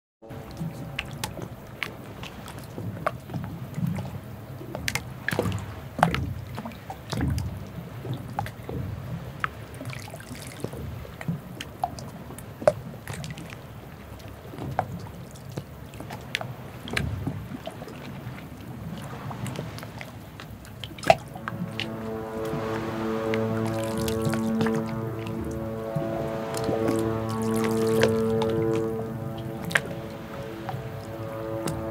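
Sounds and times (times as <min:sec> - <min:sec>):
water lapping and dripping: 0:00.2 - 0:31.9
low rumble: 0:18.2 - 0:31.9.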